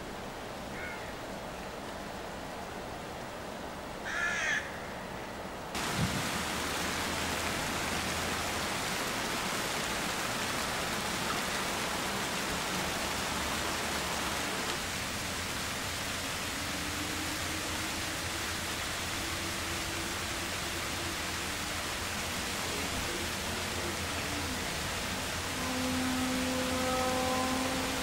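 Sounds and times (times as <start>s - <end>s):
crow cawing: 0.7s - 1.1s, 4.0s - 5.0s
rain hissing: 5.7s - 28.0s.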